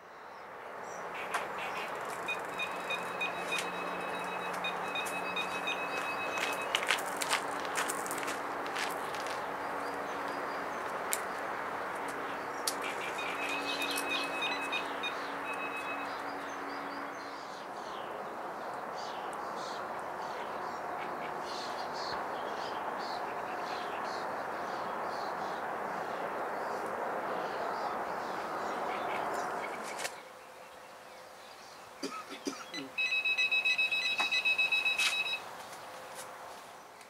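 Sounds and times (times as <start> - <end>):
steady outdoor hiss: 0.0 - 37.0
small birds chirping: 0.2 - 25.6
bite alarm beeping: 1.3 - 6.9, 12.8 - 16.3, 32.7 - 35.4.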